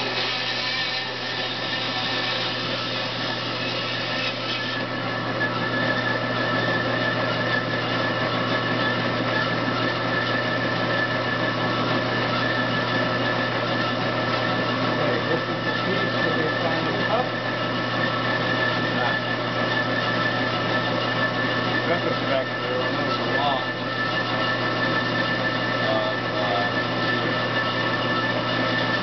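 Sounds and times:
bandsaw humming and whining: 0.0s - 29.0s.

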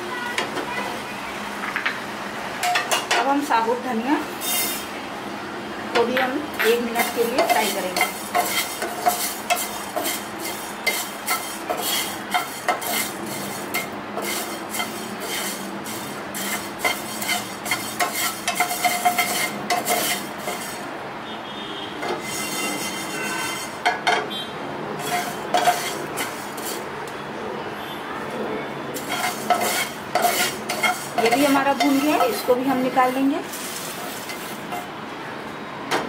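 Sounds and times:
seeds scraping and rattling in pan: 6.9s - 20.8s, 25.0s - 26.8s, 29.0s - 34.9s.

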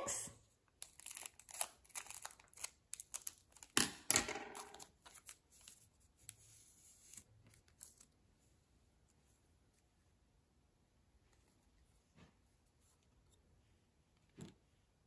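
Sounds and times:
scissors cutting wrapper: 0.8s - 3.8s
wrapper crinkling and tearing: 0.8s - 3.8s.

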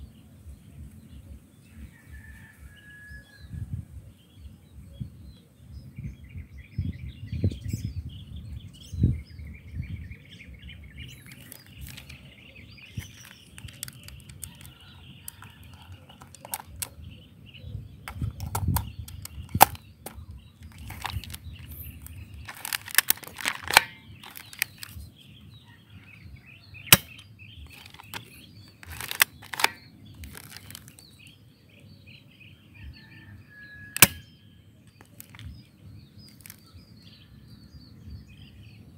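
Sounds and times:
birds chirping: 0.0s - 38.9s
rifle cocking clicks: 13.0s - 17.0s, 18.1s - 25.0s, 26.9s - 31.0s, 34.0s - 34.2s
airsoft rifle shots: 26.9s - 27.2s, 34.0s - 34.3s.

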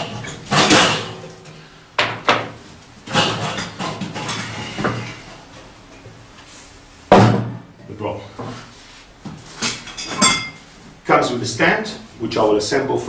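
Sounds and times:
sharp knocks on metal: 7.1s - 7.7s.

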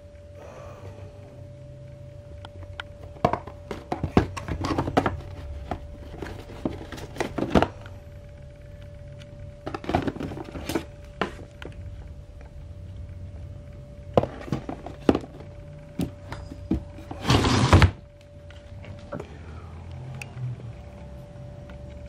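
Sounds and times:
steady hum: 0.0s - 22.0s
cardboard boxes knocking and scraping: 3.2s - 7.7s, 14.2s - 18.0s.

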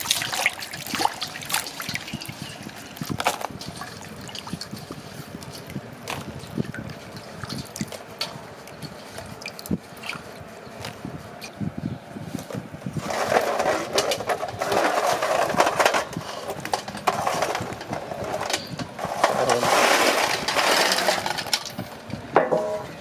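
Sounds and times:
water splashing: 0.0s - 10.4s.

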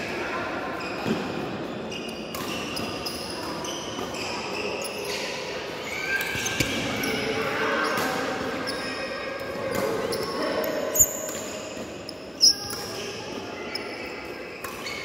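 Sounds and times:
shoes squeaking on court floor: 0.5s - 15.0s.

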